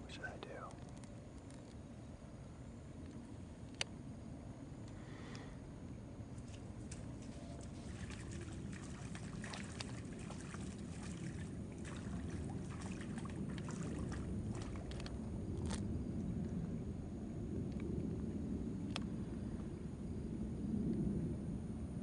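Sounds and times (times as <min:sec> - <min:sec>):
steady low rumble: 0:00.0 - 0:22.0
footsteps through shallow water: 0:06.4 - 0:15.8.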